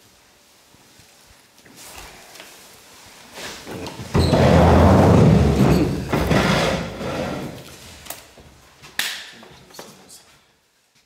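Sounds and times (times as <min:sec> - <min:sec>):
chairs scraping and rustling: 0:03.3 - 0:08.1.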